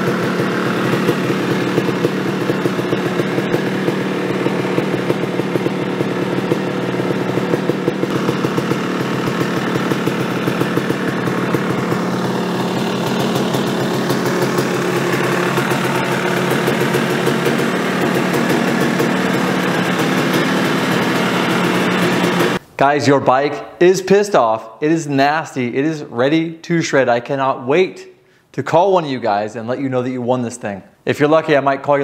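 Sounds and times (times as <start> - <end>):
dirt bike engine idling: 0.0 - 22.6.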